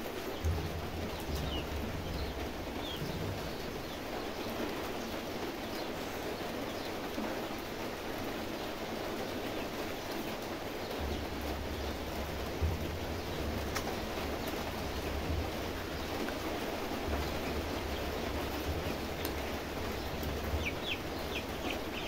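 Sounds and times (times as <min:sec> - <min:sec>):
steady rushing noise: 0:00.0 - 0:07.3.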